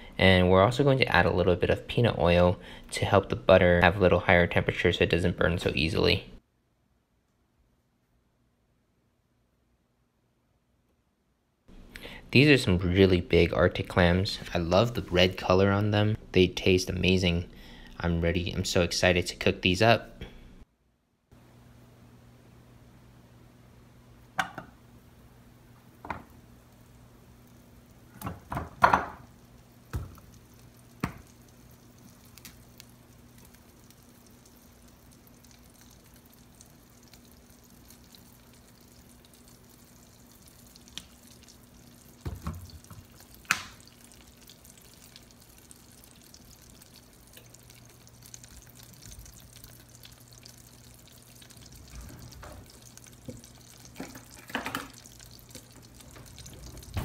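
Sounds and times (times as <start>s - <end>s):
low steady hum: 0.0s - 57.0s
butter bubbling in saucepan: 25.8s - 57.0s.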